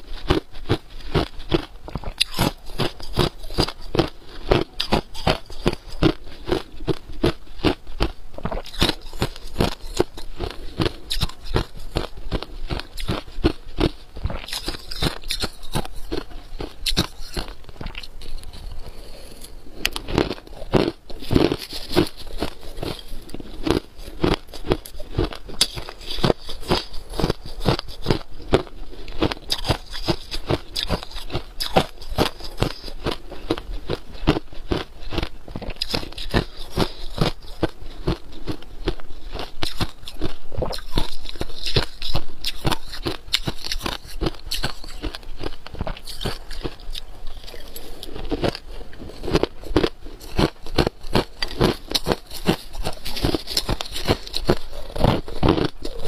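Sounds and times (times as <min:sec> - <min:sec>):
crushed ice being chewed: 0:00.0 - 0:56.0.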